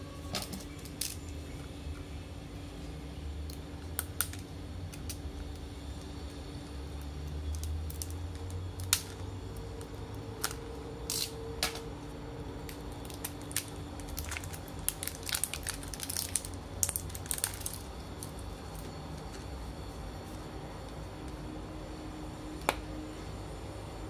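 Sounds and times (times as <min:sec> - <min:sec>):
plastic band crinkling: 0:12.6 - 0:19.5.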